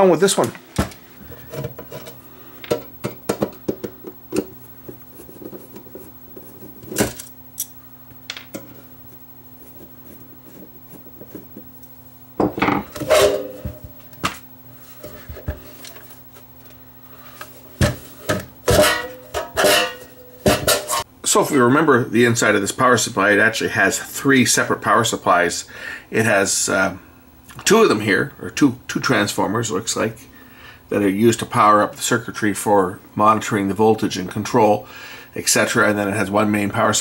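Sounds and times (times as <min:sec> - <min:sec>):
faint low hum: 0:00.0 - 0:37.0
metal cover scraping and knocking: 0:12.4 - 0:13.9, 0:18.3 - 0:21.1.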